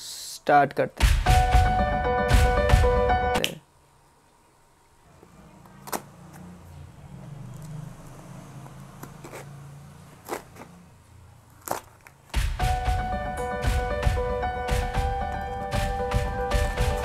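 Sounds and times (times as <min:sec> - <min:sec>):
knife slitting packing tape: 0:09.0 - 0:09.6, 0:10.2 - 0:10.8, 0:11.6 - 0:12.4.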